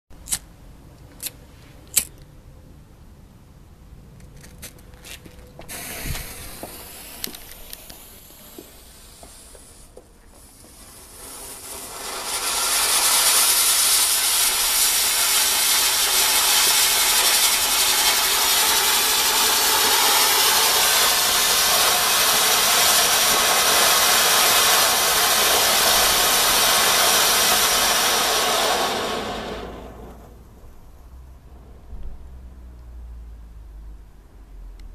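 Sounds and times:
firework fountain hissing: 5.6 - 30.5.

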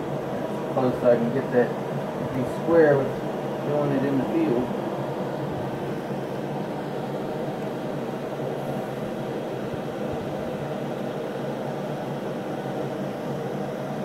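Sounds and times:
mechanical hum and hiss: 0.0 - 14.0.

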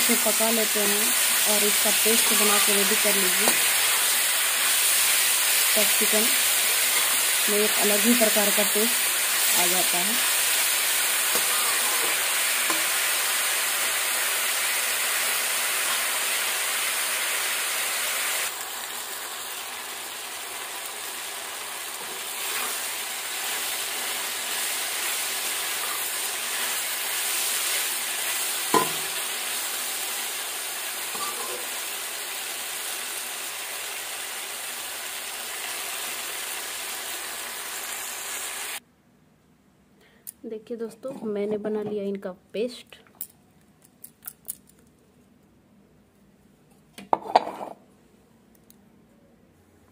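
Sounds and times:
vegetables sizzling in hot oil: 0.0 - 38.8
metal spatula stirring: 6.7 - 7.4, 11.3 - 13.0, 22.0 - 27.8.

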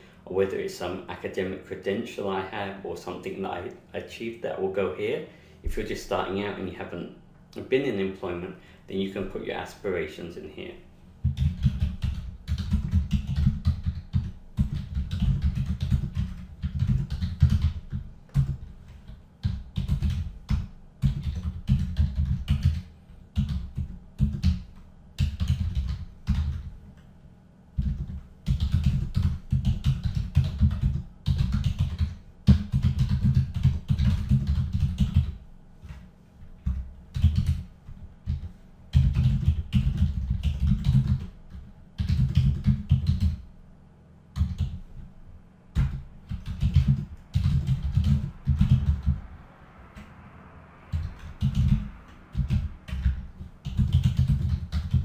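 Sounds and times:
typing on computer keyboard: 11.3 - 18.6, 19.4 - 26.7, 27.8 - 35.4, 36.6 - 37.7, 38.3 - 43.4, 44.4 - 44.8, 45.8 - 49.2, 50.9 - 55.0.

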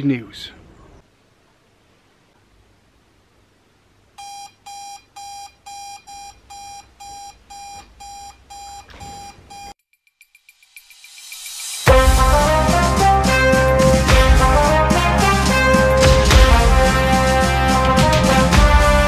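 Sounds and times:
alarm clock beeping: 4.2 - 9.8.

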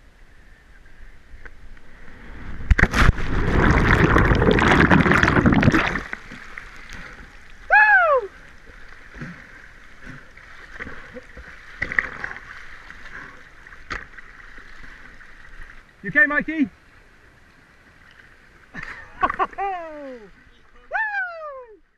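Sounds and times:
water rushing and churning: 1.6 - 21.6
body hitting water: 2.7 - 6.4
person whooping: 7.7 - 8.4, 19.6 - 20.3, 20.9 - 21.8.

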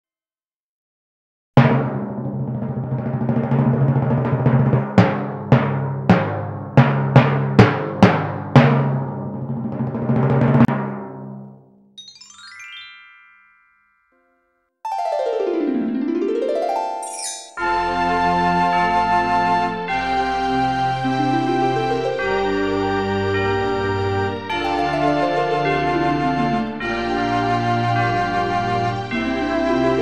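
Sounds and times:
timpani roll and strikes: 1.6 - 11.7, 24.4 - 28.4
faint short high tone: 17.0 - 17.6.

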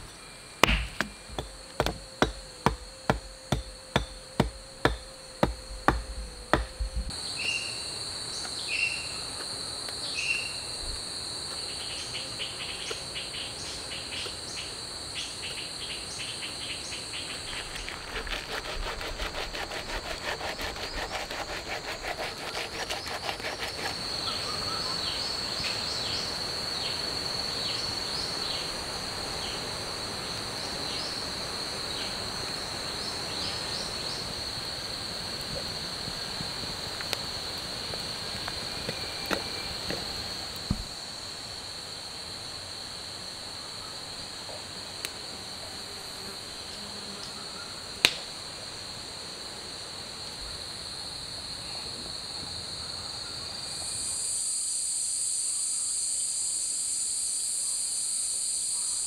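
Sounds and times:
fast insect trill: 0.0 - 43.8, 52.8 - 59.0
high insect drone: 0.0 - 59.0
sharp knocks: 0.6 - 6.8.

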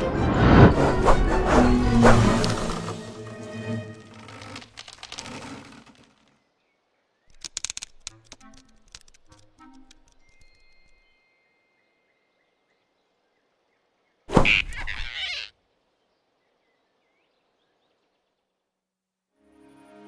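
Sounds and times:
cartoon swish with thump: 0.4 - 3.0.

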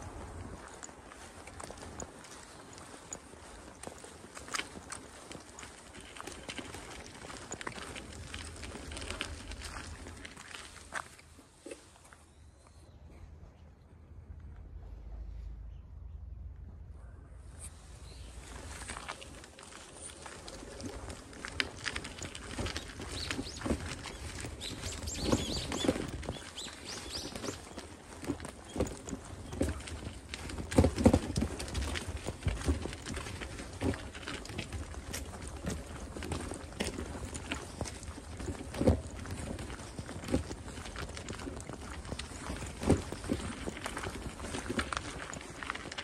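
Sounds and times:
footsteps on dirt path: 0.0 - 12.8, 17.6 - 46.0
low rumble: 12.8 - 19.4
small birds chirping: 17.6 - 20.9, 22.2 - 29.8.

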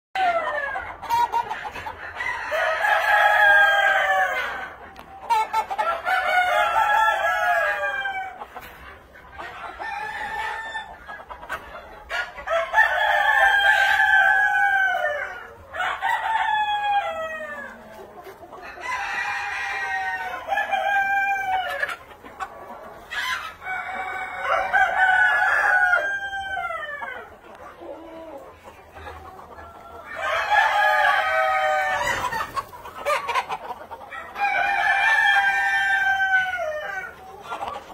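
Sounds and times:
roosters crowing: 2.0 - 4.8, 5.8 - 8.5, 9.8 - 11.0, 12.1 - 17.9, 18.6 - 22.1, 23.0 - 28.4, 29.6 - 33.4, 34.0 - 37.2.

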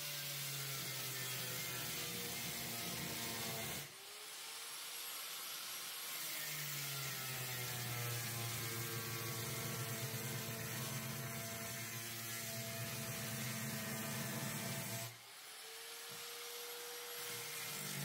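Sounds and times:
power tool motor whirring: 6.1 - 18.0.

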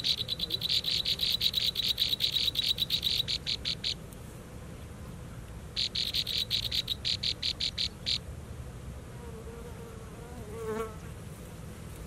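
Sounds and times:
nestling birds chirping: 0.0 - 4.0, 5.8 - 8.2.

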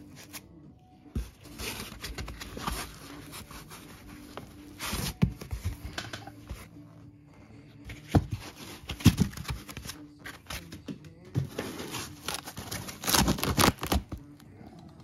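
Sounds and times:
plastic wrapping crinkling: 12.2 - 14.0.

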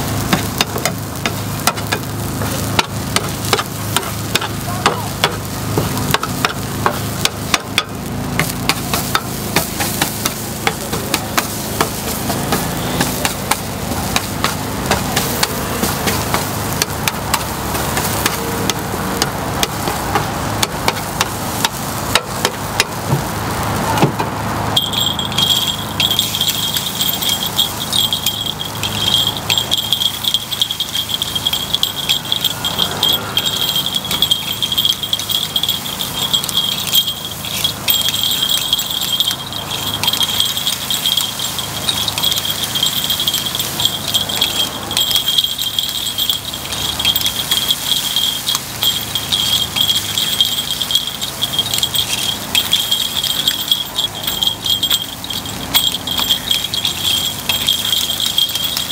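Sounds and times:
metal picks tapping grill pan: 0.0 - 23.4, 24.7 - 58.9
high-pitched tone: 24.7 - 58.9.

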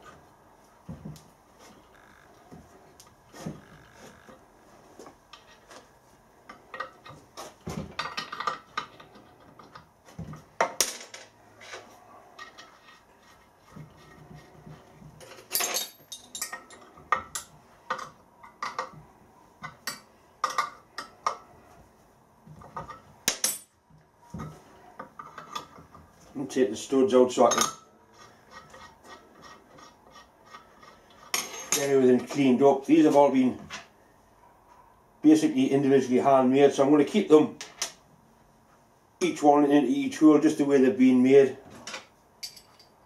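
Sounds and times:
metal nuts clinking: 15.2 - 19.0, 42.4 - 43.0.

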